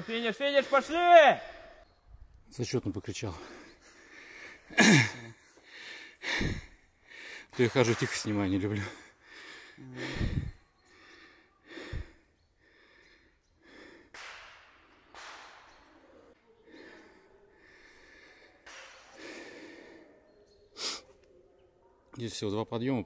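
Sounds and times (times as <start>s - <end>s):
person breathing heavily: 3.4s - 7.5s, 8.8s - 15.0s, 16.5s - 21.1s.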